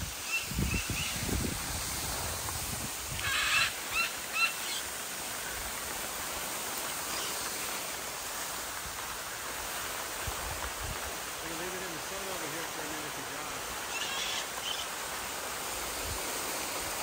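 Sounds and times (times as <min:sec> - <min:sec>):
outdoor background hiss: 0:00.0 - 0:17.0
bird calling: 0:03.1 - 0:05.0, 0:06.8 - 0:07.9, 0:13.2 - 0:15.0.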